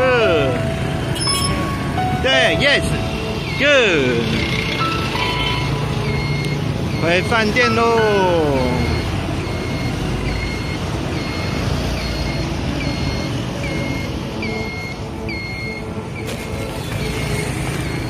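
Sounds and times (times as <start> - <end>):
motorbike engine: 0.0 - 7.3, 8.6 - 18.0
street traffic: 0.0 - 18.0
short high electronic beeps: 1.1 - 2.2.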